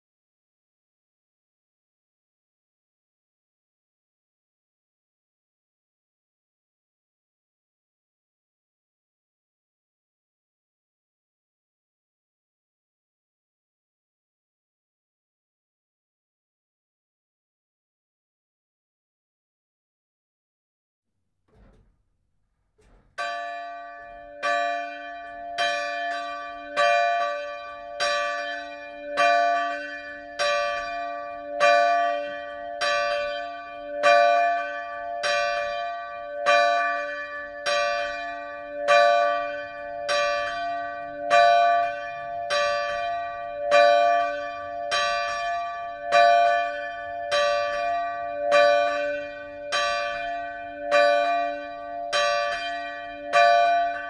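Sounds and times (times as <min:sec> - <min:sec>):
church bell ringing: 0:22.8 - 0:54.0.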